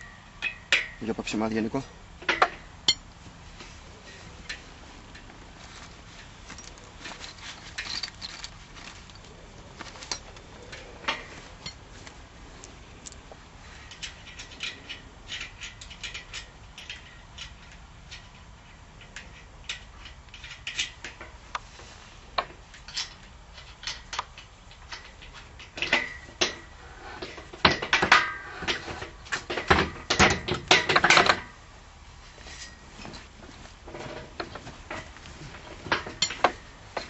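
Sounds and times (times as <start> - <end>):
metal clamp clicks and knocks: 22.4 - 31.6.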